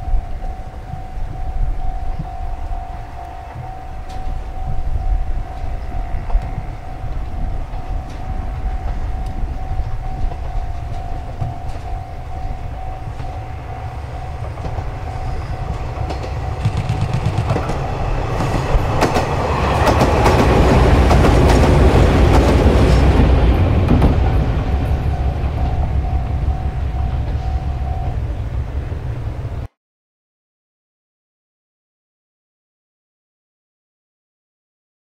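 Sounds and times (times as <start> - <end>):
steady high tone: 0.0 - 29.7
train rumbling past: 0.0 - 29.7
wheels clattering over rail joints: 7.1 - 27.5.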